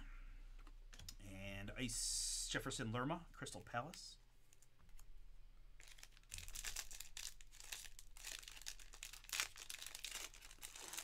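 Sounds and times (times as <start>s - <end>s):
foil wrapper crinkling: 5.8s - 11.0s.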